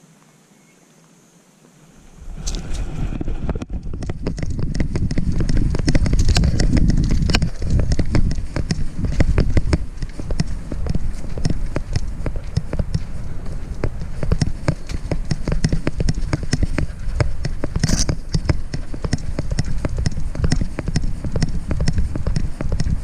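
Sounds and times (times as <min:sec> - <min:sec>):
low rumble of jostling: 0:01.9 - 0:23.0
camera clicks and rattles: 0:02.4 - 0:10.5, 0:17.8 - 0:19.2.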